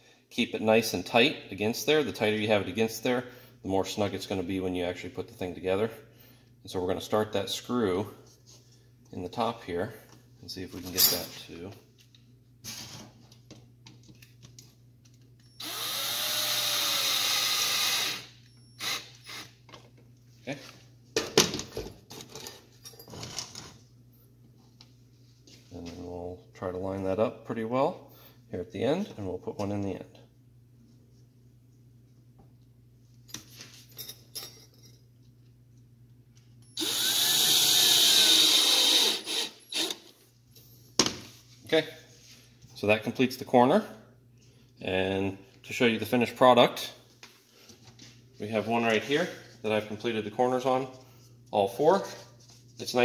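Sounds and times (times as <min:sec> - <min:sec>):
cordless drill driving screw: 0:15.6 - 0:19.5, 0:36.8 - 0:40.0.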